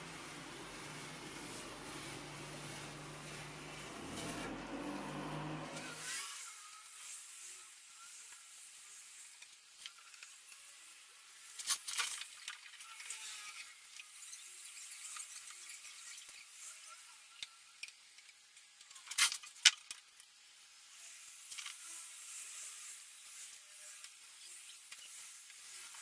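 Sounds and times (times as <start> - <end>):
tape peeling and ripping: 0.9 - 6.0.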